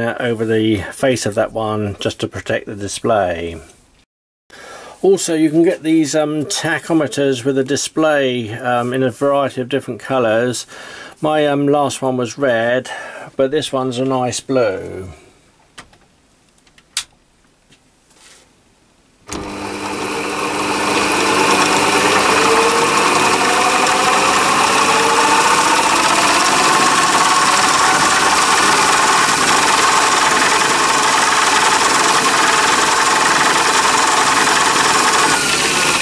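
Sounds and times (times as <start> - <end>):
lathe motor running: 19.3 - 36.0.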